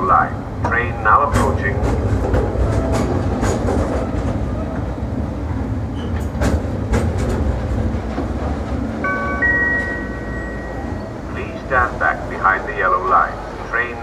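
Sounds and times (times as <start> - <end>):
wheels clicking over rail joints: 0.6 - 9.0
steady high tones: 9.0 - 12.4.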